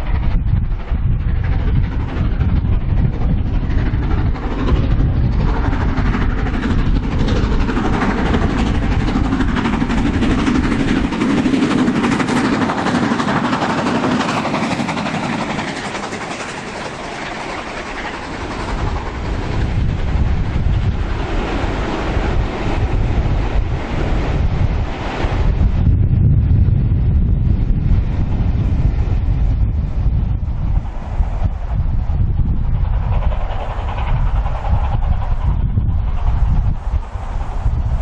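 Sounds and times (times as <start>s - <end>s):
wheels clattering on rails: 0.0s - 25.7s
steam train passing: 0.0s - 38.0s
wind buffeting microphone: 0.0s - 38.0s.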